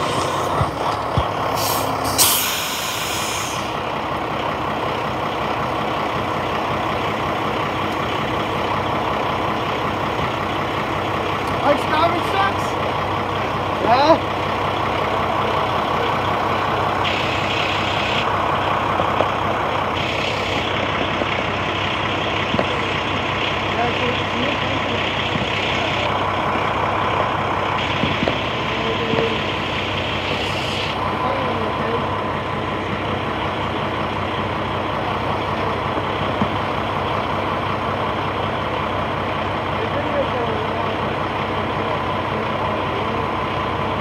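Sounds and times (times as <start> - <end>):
garbage truck diesel engine running: 0.0 - 44.0
air hiss bursts: 1.5 - 3.8.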